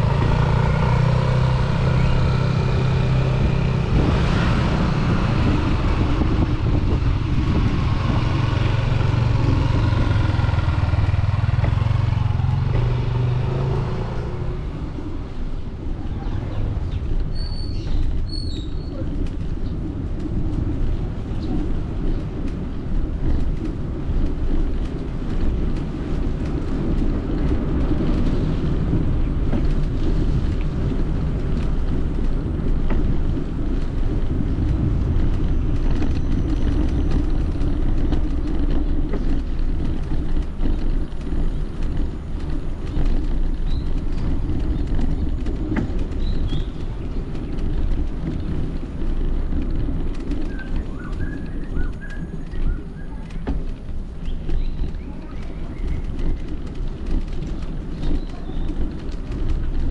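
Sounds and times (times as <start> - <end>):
tyres rolling on asphalt: 0.0 - 59.9
wind buffeting microphone: 0.0 - 59.9.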